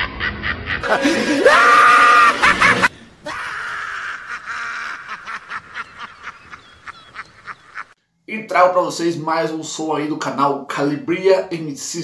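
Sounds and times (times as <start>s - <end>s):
rapid cackling: 0.0s - 8.0s
shrieking laughter sound effect: 0.0s - 8.0s.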